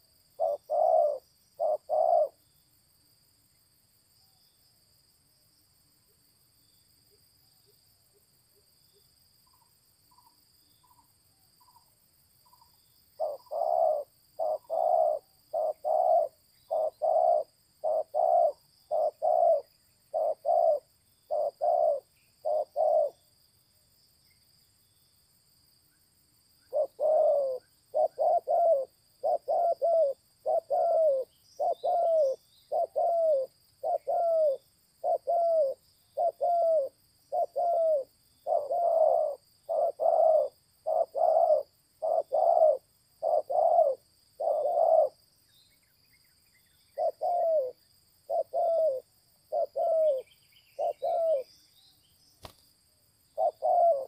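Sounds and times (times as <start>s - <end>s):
dove cooing: 0.0s - 2.4s, 13.2s - 23.2s, 26.7s - 45.2s, 46.9s - 51.5s, 53.4s - 54.0s.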